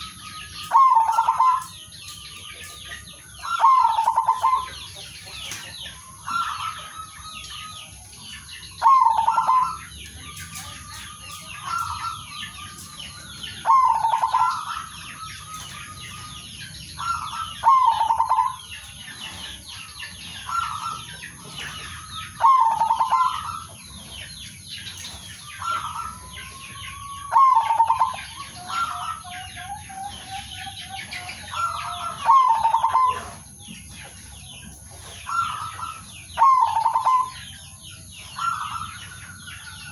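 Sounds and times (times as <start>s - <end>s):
doves cooing: 0.0s - 1.8s, 3.2s - 5.3s, 8.7s - 24.2s, 25.4s - 33.6s, 34.6s - 37.5s
small birds twittering: 0.0s - 39.9s.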